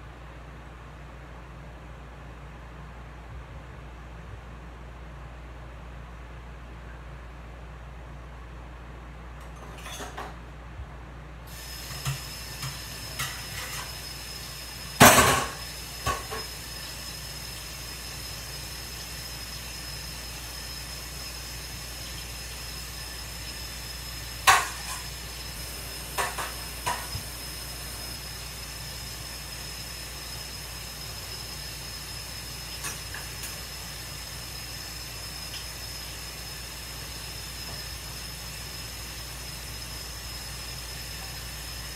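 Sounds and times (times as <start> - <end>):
dishes clinking: 9.5 - 10.4.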